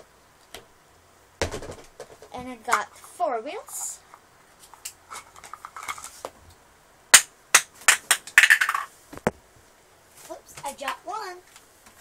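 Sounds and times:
plastic parts clacking: 5.1s - 6.2s, 7.9s - 8.9s.

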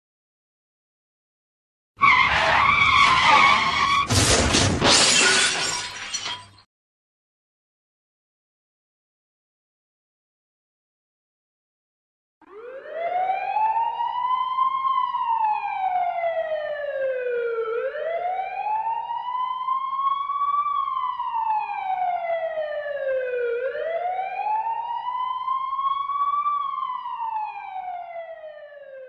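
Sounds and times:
ambulance siren wailing: 2.0s - 4.1s, 12.4s - 29.0s.

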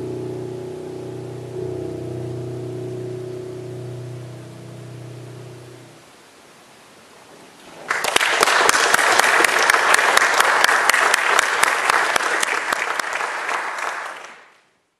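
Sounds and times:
audience applauding: 7.7s - 14.6s.

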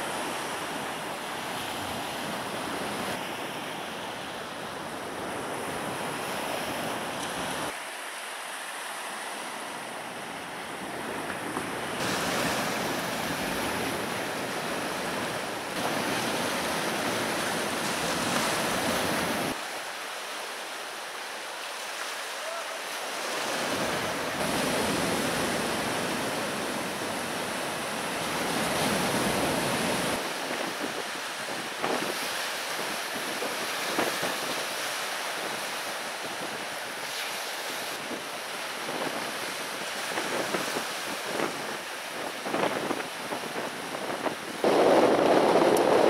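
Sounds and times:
surf washing onto beach: 0.0s - 46.0s
wind buffeting microphone: 38.8s - 46.0s.

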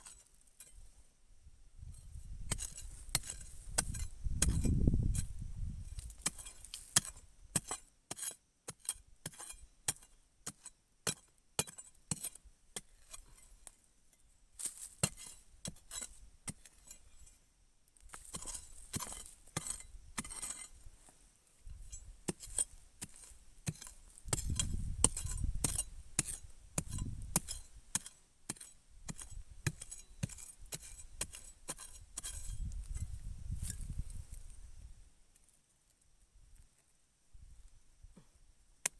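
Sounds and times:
metal blade chopping into soil: 0.0s - 0.9s, 1.9s - 5.3s, 5.9s - 13.8s, 14.6s - 17.4s, 18.1s - 20.8s, 21.7s - 33.9s.

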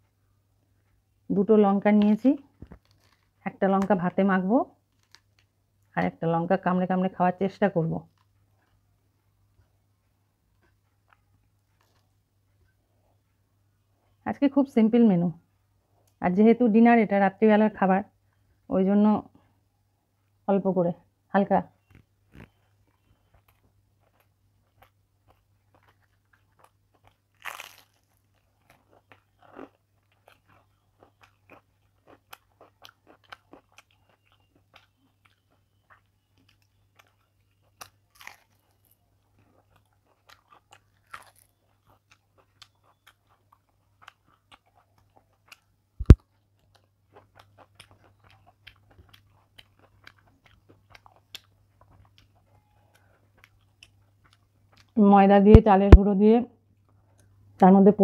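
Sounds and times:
crunching fried fritters: 1.8s - 14.2s, 21.8s - 55.0s
chewing: 2.6s - 3.4s, 4.9s - 5.5s, 8.1s - 13.2s, 21.8s - 55.0s.

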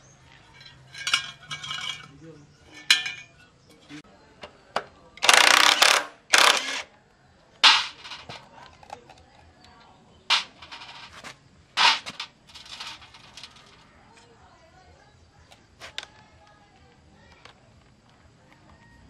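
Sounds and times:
impact wrench rattling bursts: 5.2s - 6.9s, 7.6s - 8.4s, 10.3s - 11.2s, 11.8s - 13.5s.

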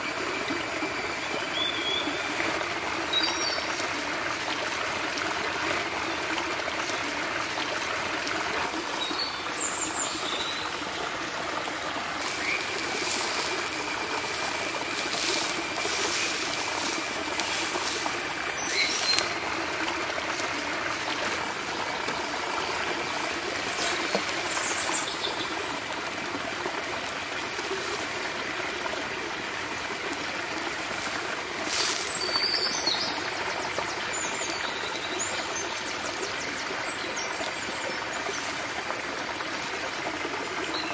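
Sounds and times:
high steady whine: 0.0s - 34.1s
running water: 0.0s - 40.9s
bird chirps: 14.4s - 19.3s.

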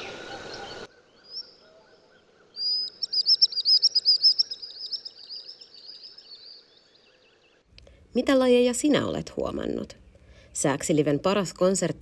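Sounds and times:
sandpiper singing high trill: 2.6s - 6.6s.

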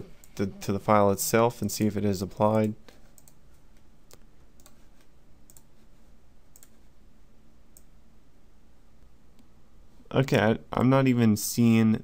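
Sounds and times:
faint low hum: 0.0s - 12.0s
computer mouse clicking: 2.6s - 5.8s, 6.5s - 6.9s.

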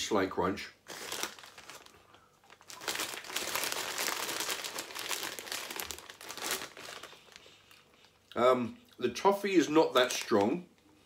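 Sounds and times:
plastic bag crinkling: 0.8s - 8.2s, 9.8s - 10.6s.

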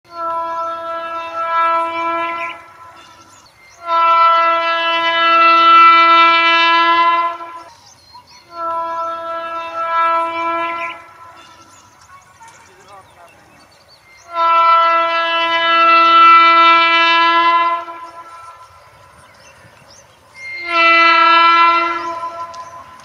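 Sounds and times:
locomotive air horn blasts: 0.1s - 7.7s, 8.4s - 11.7s, 14.2s - 18.9s, 20.4s - 23.0s.

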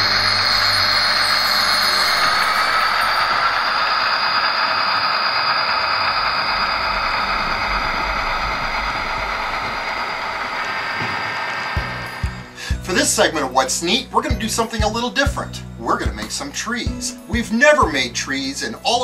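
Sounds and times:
diesel locomotives rumbling past: 0.0s - 14.1s
thin high whine: 0.0s - 19.0s.

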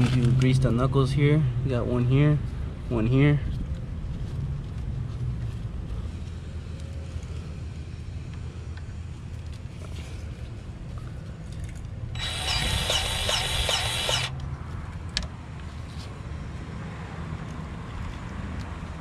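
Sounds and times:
powered grease gun hissing: 12.2s - 14.3s.

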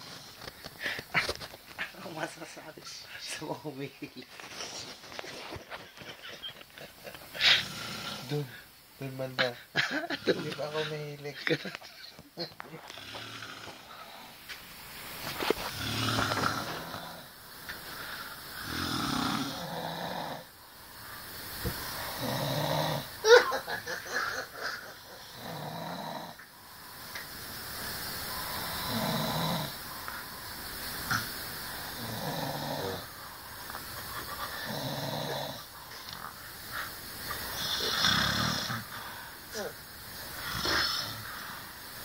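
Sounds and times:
person snoring heavily: 7.3s - 8.7s, 12.8s - 14.4s, 15.5s - 26.9s, 28.3s - 30.0s, 31.1s - 41.9s.

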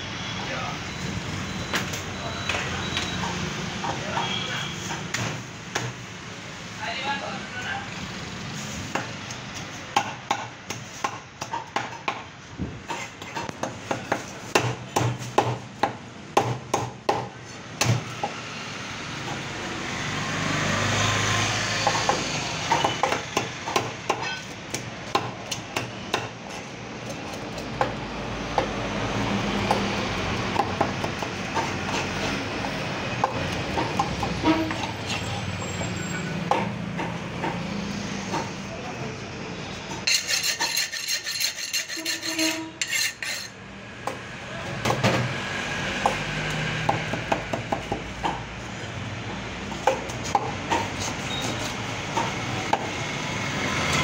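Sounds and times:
blade scraping and cutting fish: 40.1s - 43.5s.

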